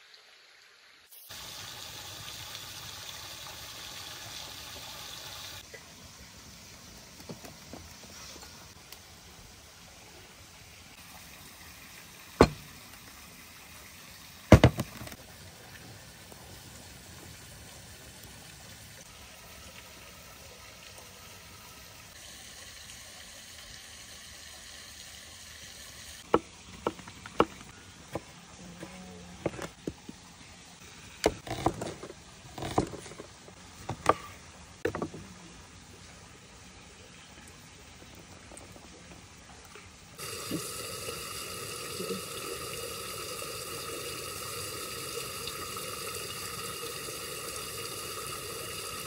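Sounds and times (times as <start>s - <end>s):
knocks on wooden cutting board: 12.4s - 12.6s, 14.5s - 15.1s.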